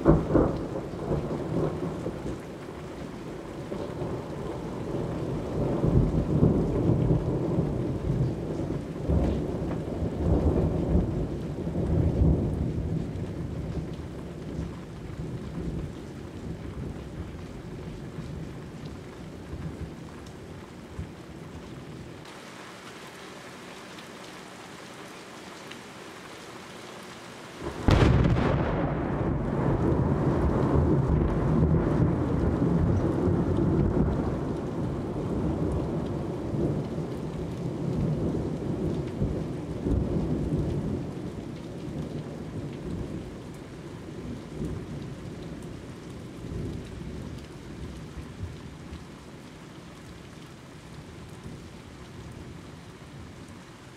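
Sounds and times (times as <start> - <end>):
thunder crack and rumble: 0.0 - 2.4, 3.7 - 18.6, 27.6 - 43.3
steady rain: 0.0 - 53.9.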